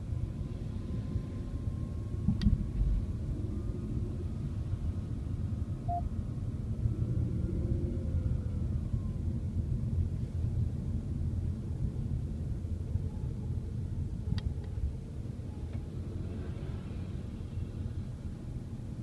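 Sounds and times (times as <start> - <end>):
road and engine rumble in car: 0.0 - 19.0
short beep: 5.9 - 6.1.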